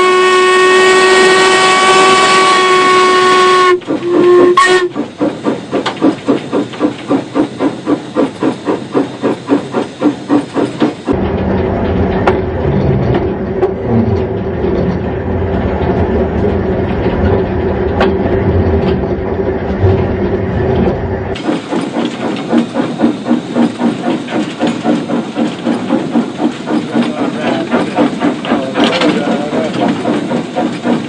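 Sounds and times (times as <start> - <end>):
hissing steam: 0.0 - 11.2, 21.3 - 31.0
locomotive exhaust chuffs: 0.0 - 31.0
steam locomotive rumble: 0.0 - 31.0.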